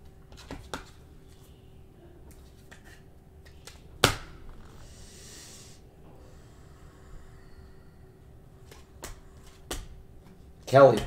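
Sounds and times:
cards slapping on table: 8.7s - 10.0s.

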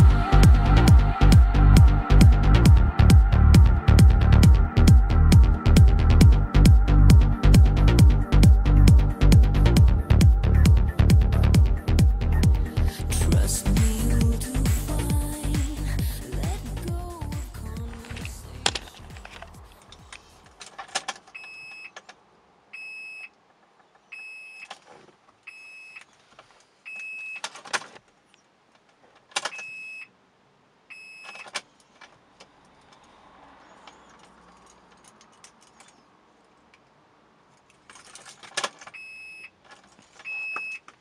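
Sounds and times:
keys rattling: 17.6s - 21.4s, 33.9s - 36.0s, 37.6s - 39.0s
car warning chime beeping: 21.3s - 22.0s, 22.7s - 23.4s, 24.1s - 24.7s, 25.5s - 26.0s, 29.5s - 30.2s, 30.9s - 31.5s, 38.9s - 39.6s, 40.2s - 40.9s.

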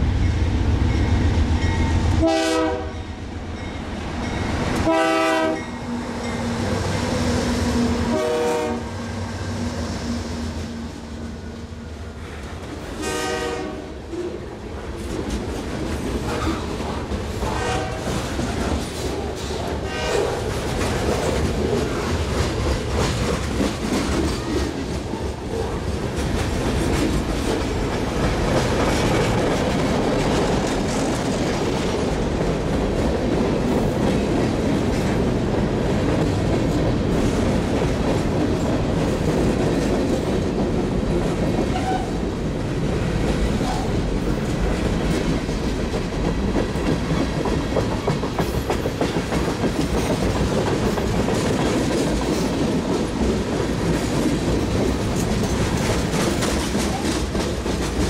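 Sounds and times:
train horn blasts: 2.2s - 3.1s, 4.8s - 5.8s, 8.0s - 9.0s, 13.0s - 14.0s, 17.5s - 18.1s, 19.9s - 20.3s, 41.7s - 42.2s
train wheels clicking over rail joints: 14.9s - 42.1s, 42.9s - 58.0s.

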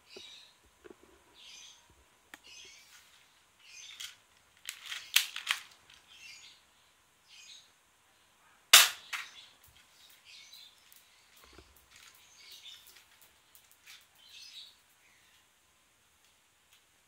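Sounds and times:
faint bird chirps: 6.1s - 15.6s
loud sharp toy pistol shot: 8.8s - 9.3s.

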